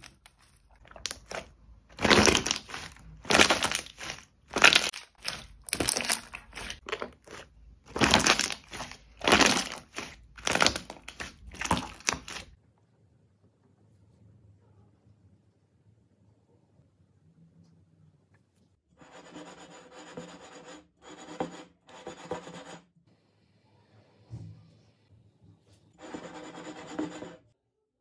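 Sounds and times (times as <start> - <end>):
slime squished by hand: 0.0 - 12.5.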